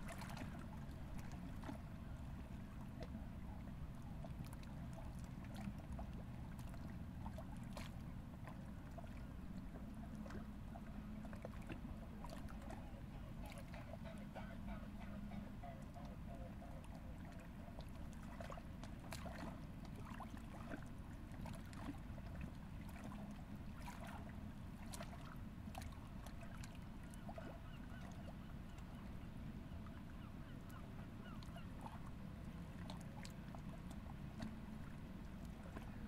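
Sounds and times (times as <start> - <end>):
bird calls: 13.6 - 16.9.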